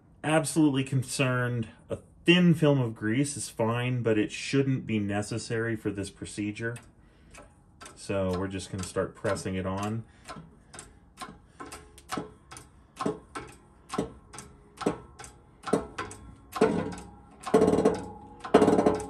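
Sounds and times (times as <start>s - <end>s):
press pump handle clicking: 7.3s - 19.0s
metal creaking and ringing: 11.2s - 19.0s.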